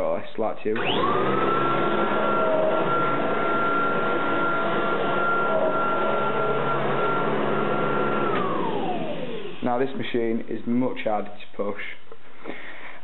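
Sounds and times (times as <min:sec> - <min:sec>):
vacuum cleaner running on carpet: 0:00.8 - 0:09.8.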